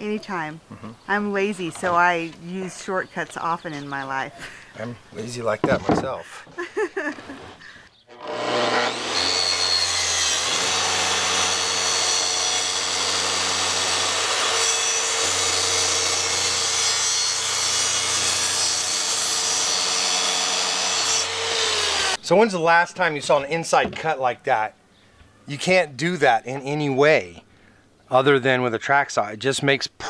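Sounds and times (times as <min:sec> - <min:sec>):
circular saw cutting wood: 0:08.1 - 0:22.2.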